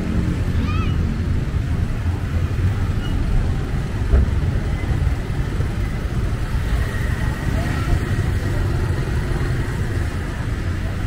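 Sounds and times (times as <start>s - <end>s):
engine and road rumble: 0.0s - 11.0s.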